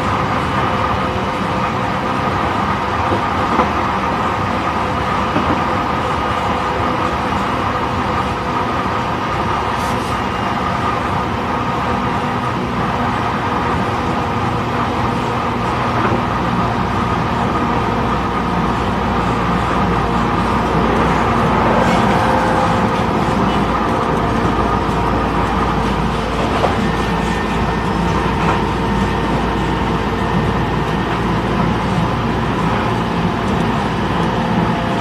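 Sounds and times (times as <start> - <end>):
train wheels rumbling on rail: 0.0 - 35.0.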